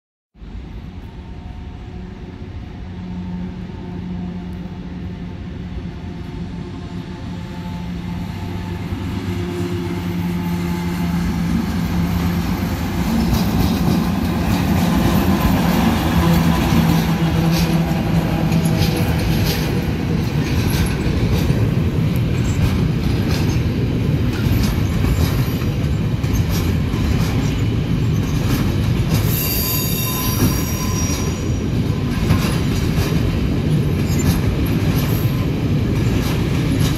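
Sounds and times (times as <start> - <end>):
diesel locomotive engine hum: 0.4 - 36.9
train wheels rumbling and clicking: 0.4 - 36.9
wheels squealing: 27.4 - 32.1.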